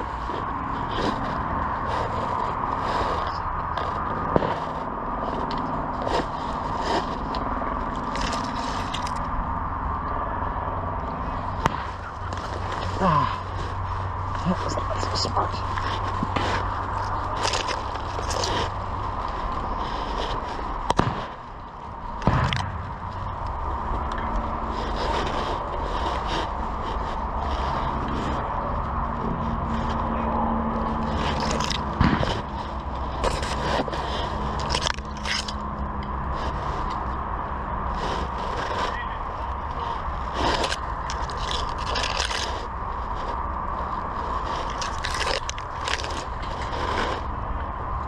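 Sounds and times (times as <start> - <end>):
brush rustling against microphone: 0.0 - 47.8.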